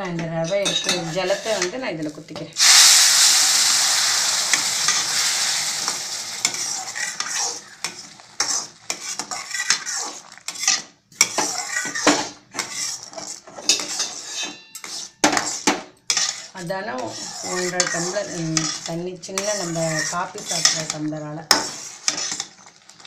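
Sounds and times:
metal ladle scraping a pan: 0.7s - 1.8s, 2.6s - 22.8s
loud sizzling hiss: 2.6s - 9.2s.

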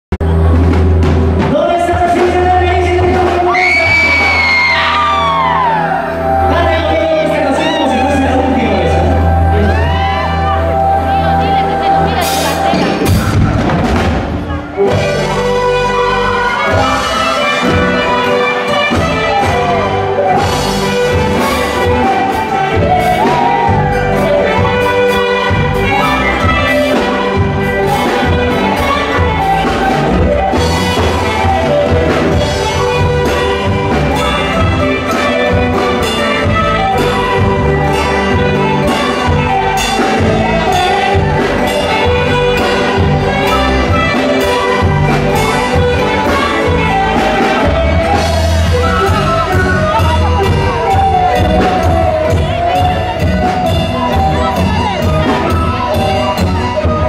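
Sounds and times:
live band playing amplified music: 0.2s - 57.0s
saxophone and horns: 0.2s - 57.0s.

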